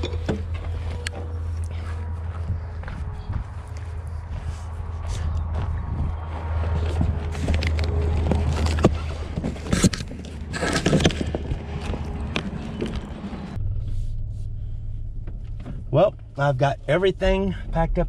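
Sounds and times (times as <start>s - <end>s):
steady low rumble: 0.0s - 18.0s
footsteps on gravel: 0.2s - 13.6s.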